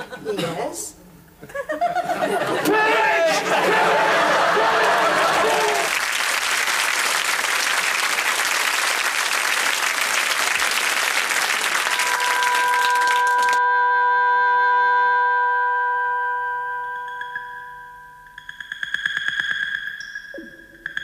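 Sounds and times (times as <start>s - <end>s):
studio audience applauding: 2.7s - 13.6s.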